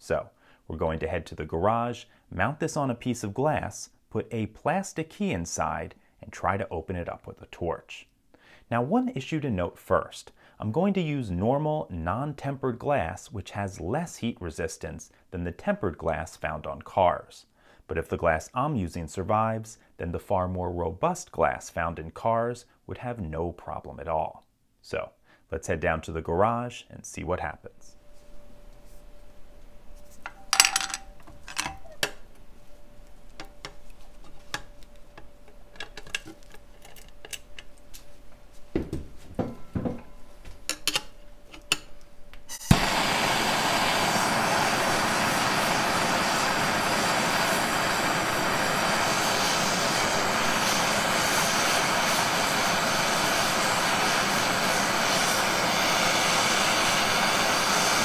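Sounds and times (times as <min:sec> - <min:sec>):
torch flame hissing: 0:42.5 - 0:58.0
torch igniting click: 0:42.5 - 0:58.0.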